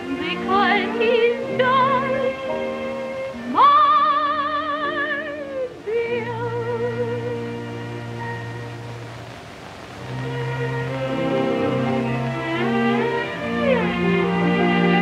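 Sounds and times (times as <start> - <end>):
woman singing a slow ballad: 0.0 - 2.6, 3.4 - 8.0
theatre orchestra: 0.0 - 15.0.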